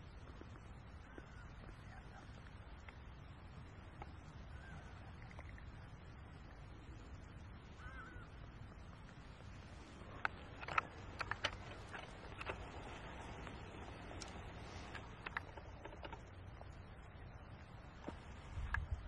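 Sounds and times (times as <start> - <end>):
faint bird chirps: 0.8 - 2.8, 4.1 - 8.5
sharp clicks and snaps: 10.2 - 12.6.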